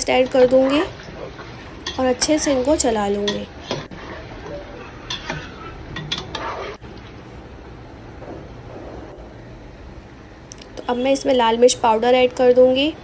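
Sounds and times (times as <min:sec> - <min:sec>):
metal spatula scraping frying pan: 0:00.0 - 0:06.8.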